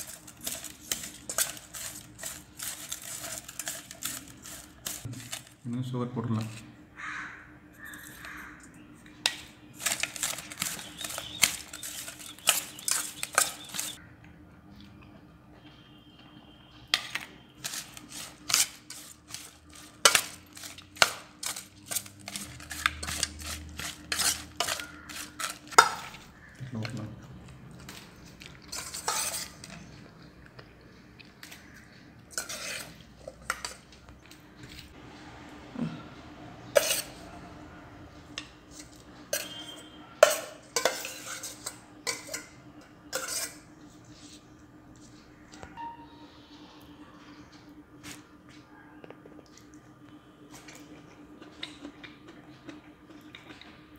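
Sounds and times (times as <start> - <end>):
fork scraping metal bowl: 0.0 - 5.6, 9.8 - 14.0, 17.6 - 26.3, 28.6 - 29.8, 32.3 - 33.8, 36.7 - 37.2, 38.7 - 44.5.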